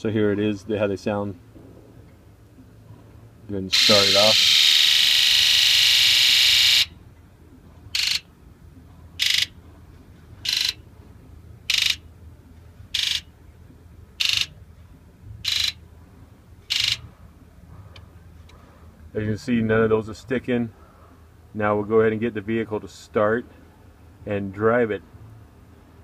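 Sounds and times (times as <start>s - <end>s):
fuel injectors buzzing: 3.7s - 6.9s, 7.9s - 8.2s, 9.2s - 9.5s, 11.7s - 12.0s, 12.9s - 13.3s, 15.4s - 15.8s, 16.7s - 17.0s.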